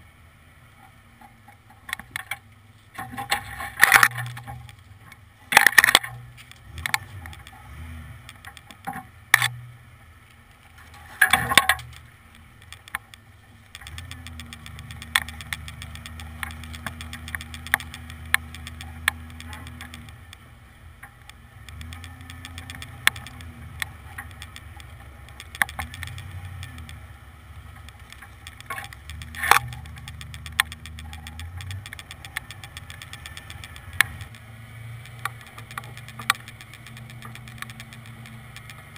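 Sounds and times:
truck engine droning: 0.0 - 38.9
sharp knocks and rattles: 10.8 - 20.4, 21.0 - 38.9.

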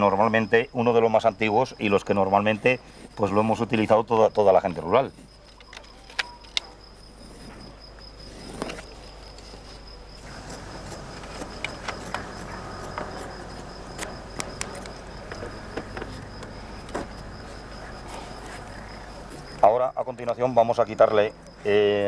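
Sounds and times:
crickets trilling: 0.0 - 22.0
clicks and scrapes of hands working: 10.2 - 17.2.

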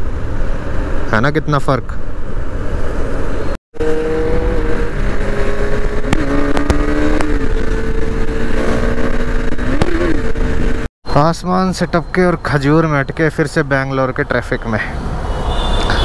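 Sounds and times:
wind and road rumble: 0.0 - 16.0
motorcycle engine: 3.8 - 10.9.

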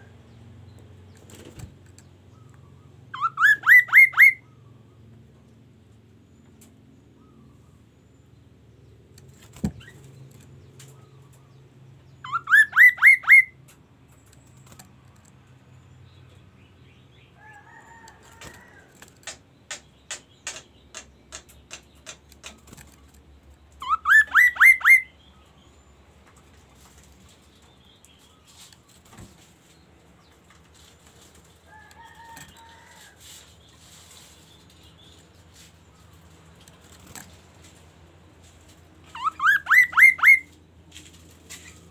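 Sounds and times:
bird whistled phrases: 3.2 - 4.4, 12.2 - 13.6, 23.8 - 25.2, 39.2 - 40.5.

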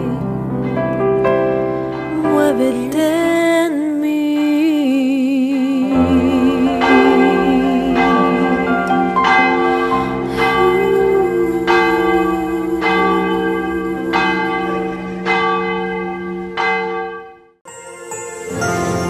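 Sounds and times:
church bell tolling: 0.0 - 4.8, 5.8 - 19.0
soft instrumental music: 17.7 - 19.0.

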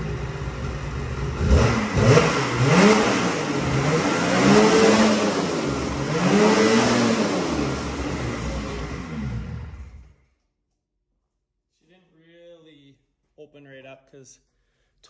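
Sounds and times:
snowmobile engine revving: 1.1 - 10.1.

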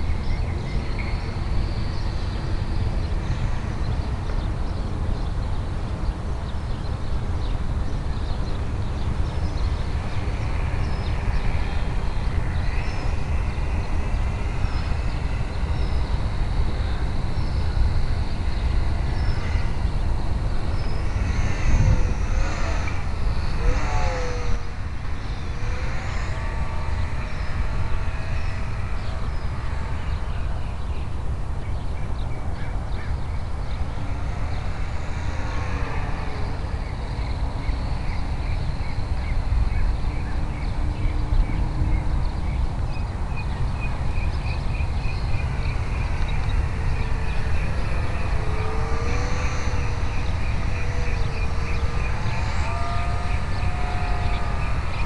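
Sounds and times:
model airplane motor whining: 9.1 - 31.2, 33.5 - 38.4, 45.4 - 55.0.

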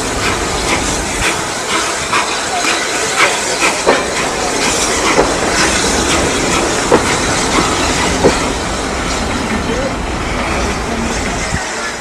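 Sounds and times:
train rumble: 0.0 - 12.0
train wheels clicking over rail joints: 0.0 - 12.0.

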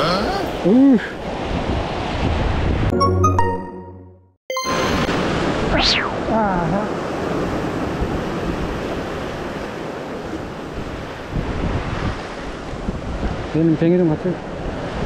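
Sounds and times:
wind buffeting microphone: 1.2 - 2.9, 5.3 - 15.0.

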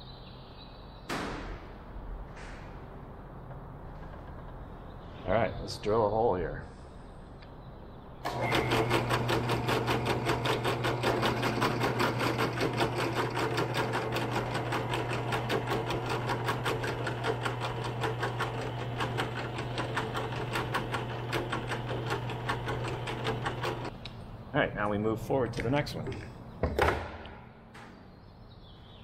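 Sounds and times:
drill press motor hum: 8.2 - 24.0
drill bit ticking on metal: 8.3 - 23.9.

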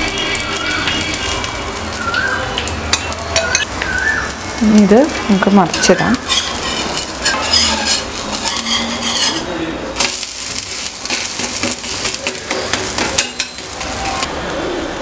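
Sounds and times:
batter sizzling in ghee: 0.0 - 15.0
spatula scraping and tapping on iron: 6.2 - 9.5.

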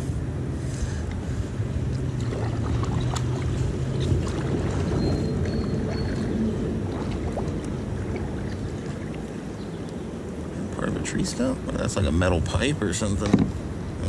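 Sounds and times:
steady low noise: 0.0 - 14.0
paddle swishing through water: 0.5 - 10.6.

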